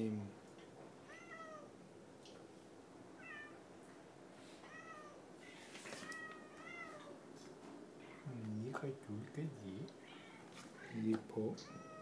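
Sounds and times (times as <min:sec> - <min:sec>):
cat meowing faintly: 0:01.0 - 0:01.8, 0:03.2 - 0:03.6, 0:04.6 - 0:07.2, 0:10.0 - 0:11.0, 0:11.6 - 0:12.0
brief rustle: 0:05.6 - 0:06.3.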